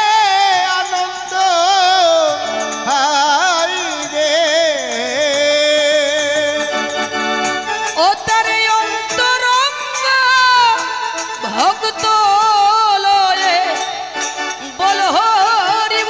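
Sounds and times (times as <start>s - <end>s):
harmonium chords: 0.0s - 16.0s.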